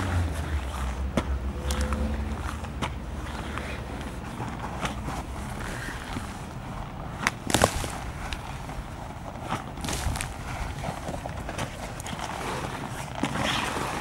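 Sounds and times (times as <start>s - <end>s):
snow crunching: 3.2s - 14.0s.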